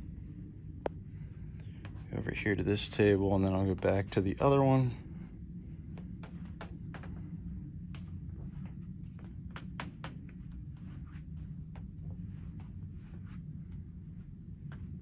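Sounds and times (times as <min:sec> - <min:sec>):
low rumble: 0:00.0 - 0:15.0
faint irregular clicks and taps: 0:05.9 - 0:13.1.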